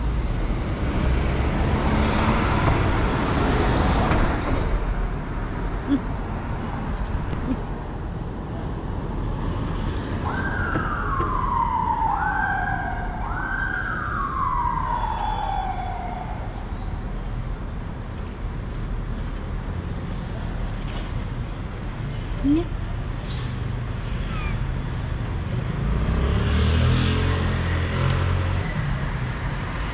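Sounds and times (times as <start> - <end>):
emergency siren wailing: 10.1 - 16.6.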